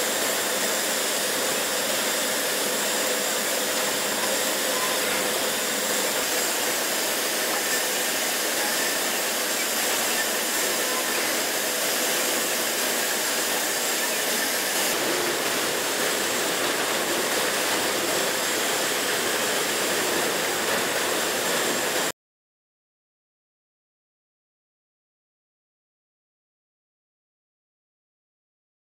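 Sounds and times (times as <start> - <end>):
hydraulic rig rushing hiss: 0.0 - 22.1.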